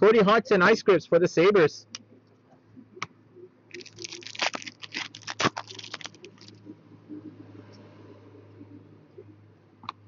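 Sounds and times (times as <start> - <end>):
card pack wrapper tearing: 3.7 - 6.6.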